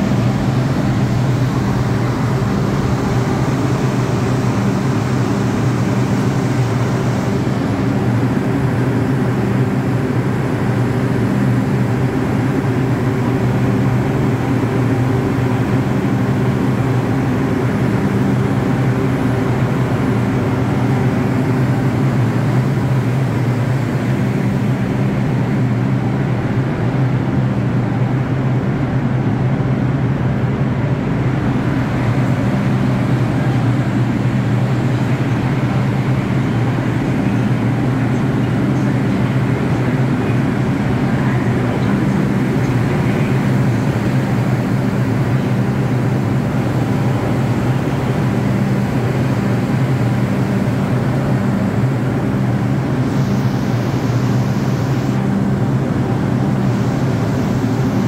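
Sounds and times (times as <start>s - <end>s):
subway train humming: 0.0s - 58.0s.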